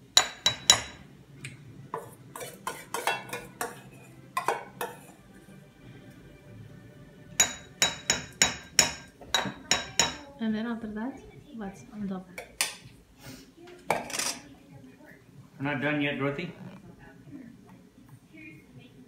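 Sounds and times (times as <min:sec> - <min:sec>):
metal spoon clinking on bowl: 0:07.4 - 0:10.3.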